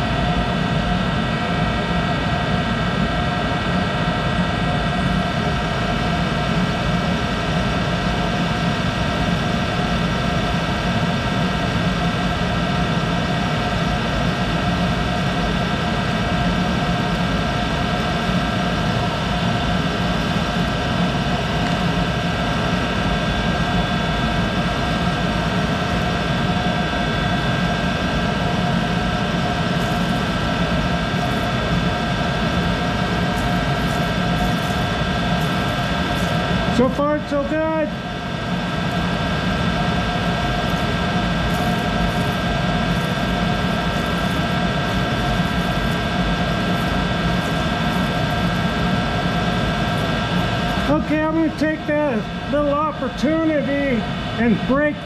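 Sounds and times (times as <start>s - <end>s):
lathe humming and whining: 0.0s - 55.0s.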